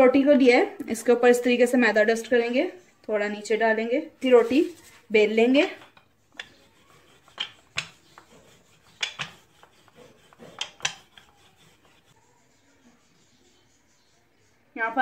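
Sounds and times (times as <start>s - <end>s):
rolling pin rubbing dough: 4.2s - 15.0s.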